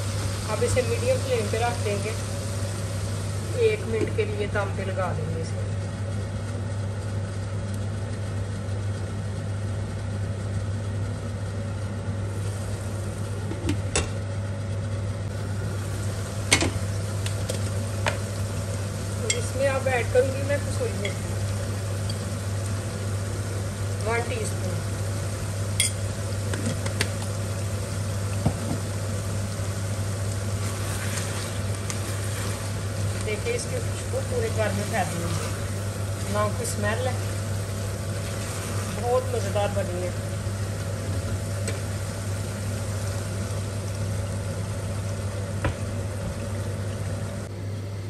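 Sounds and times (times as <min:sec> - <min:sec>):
steady low hum: 0:00.0 - 0:48.0
curry simmering and sizzling: 0:15.3 - 0:47.4
curry simmering in a pan: 0:29.0 - 0:39.3.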